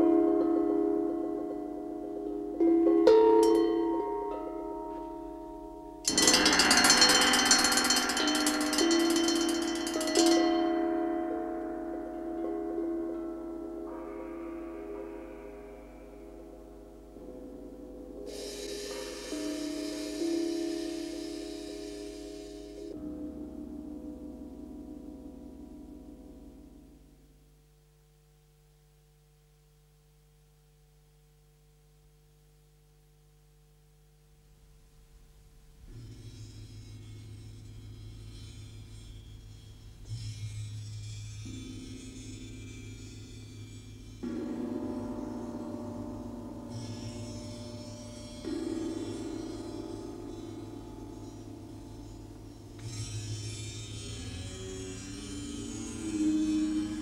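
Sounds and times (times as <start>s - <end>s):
tam-tam ringing: 0.0s - 27.0s, 35.8s - 57.0s
faint steady hum: 0.0s - 57.0s
cowbells struck in a roll: 6.0s - 15.2s.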